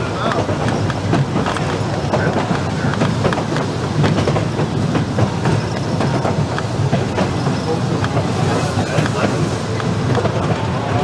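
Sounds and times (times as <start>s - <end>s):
wheels rumbling on rail: 0.0s - 11.0s
sharp clicks of track: 0.2s - 8.3s.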